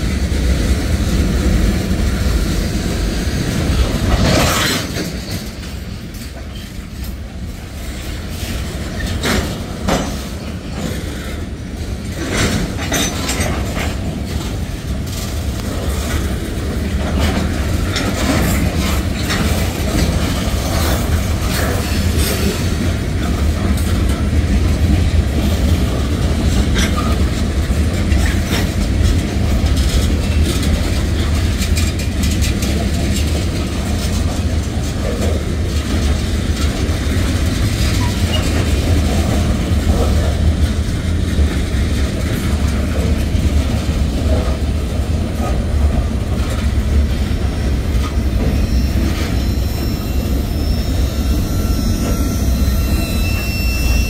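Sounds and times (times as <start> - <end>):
train wheels rumbling on rail: 0.0 - 54.0
wheels clanking over rail joints: 0.0 - 54.0.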